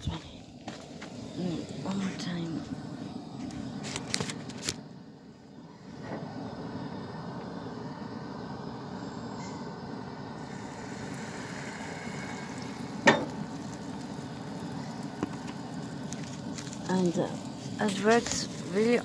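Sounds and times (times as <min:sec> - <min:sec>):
gas stove hissing: 0:00.0 - 0:19.0
skillet clanking on grate: 0:13.0 - 0:13.4.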